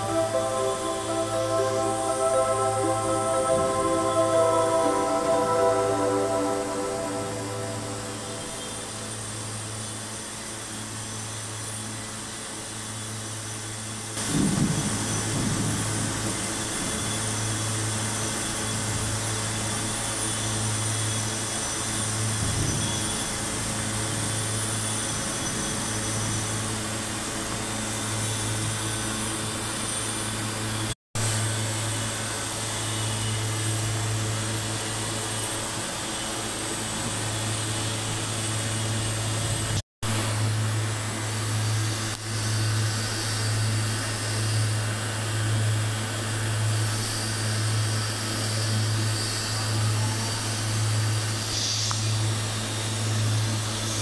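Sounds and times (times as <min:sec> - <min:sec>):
arc welding hum and hiss: 0:22.9 - 0:54.0.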